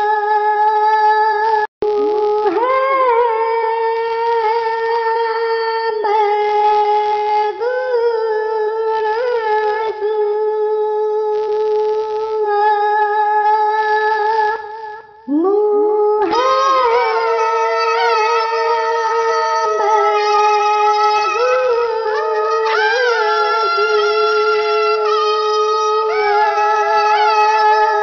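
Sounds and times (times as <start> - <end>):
person chanting long notes: 0.0 - 28.0.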